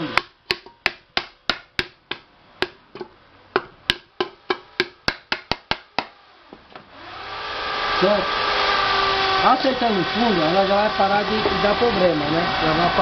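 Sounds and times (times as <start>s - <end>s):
wood knocking on pressure cooker: 0.2s - 6.1s.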